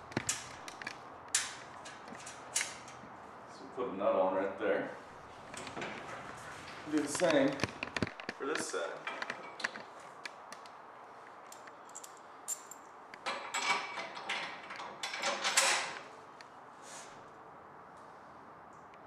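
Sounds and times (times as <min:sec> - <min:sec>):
small metal clicks: 0:00.0 - 0:03.0.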